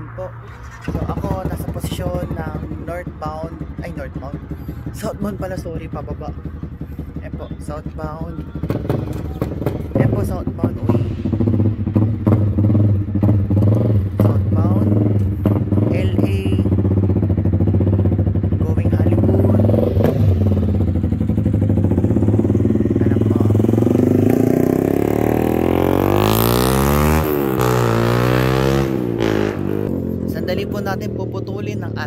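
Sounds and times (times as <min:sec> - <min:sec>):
vehicle engine running: 0:00.0 - 0:32.0
vehicle speeding past: 0:19.6 - 0:30.6.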